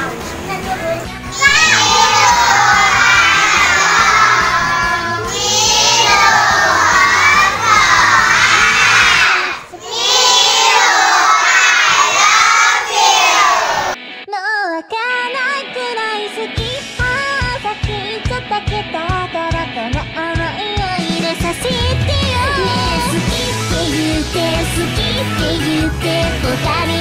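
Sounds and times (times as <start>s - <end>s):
children shouting a chant: 1.3s - 14.0s
person singing: 14.3s - 27.0s
pop backing track with beat: 16.5s - 27.0s.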